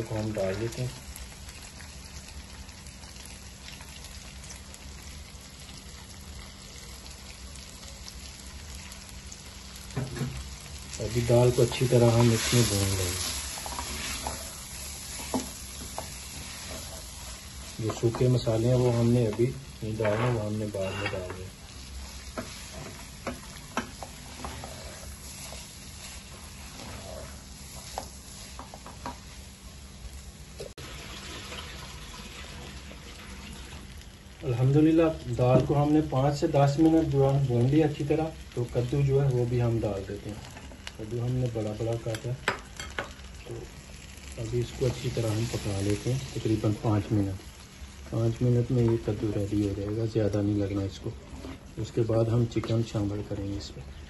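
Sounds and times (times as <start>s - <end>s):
masala sizzling in a pot: 0.0s - 54.0s
spatula stirring in a pot: 11.4s - 29.5s.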